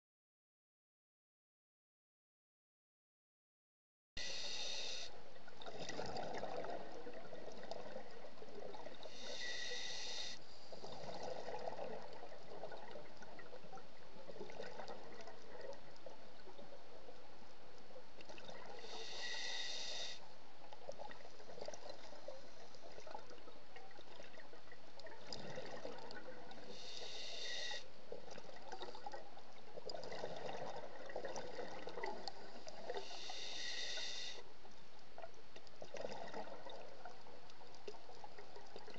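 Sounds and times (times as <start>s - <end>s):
regulator inhale hiss: 4.2s - 5.2s, 9.0s - 11.0s, 18.8s - 20.2s, 26.7s - 27.9s, 32.4s - 34.5s
exhale bubbling underwater: 5.5s - 10.0s, 25.1s - 29.2s, 29.8s - 34.1s, 35.8s - 37.2s.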